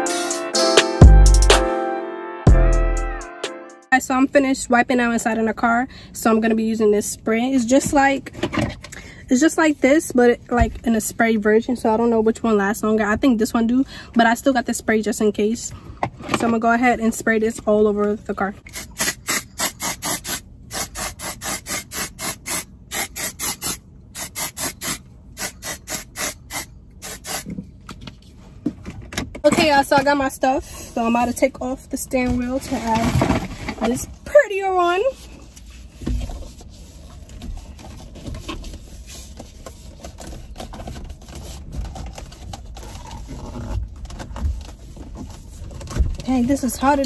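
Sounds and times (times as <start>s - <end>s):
cover rubbing on steering wheel: 18.6s - 28.7s, 32.2s - 47.0s
spray bottle spritzing: 18.7s - 27.5s.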